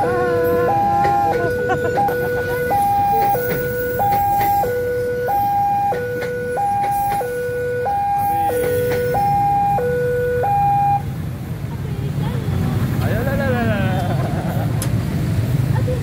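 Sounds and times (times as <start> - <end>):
two-tone crossing alarm: 0.0 - 11.1
train rumbling past: 0.0 - 16.0.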